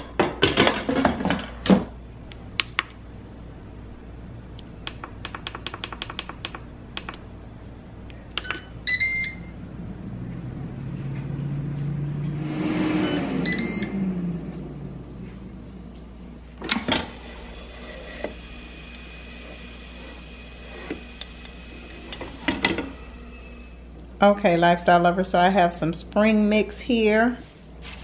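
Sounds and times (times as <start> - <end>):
air fryer fan humming: 0.0 - 12.3, 13.2 - 27.0
control panel beeps: 8.4 - 9.6, 13.0 - 14.0.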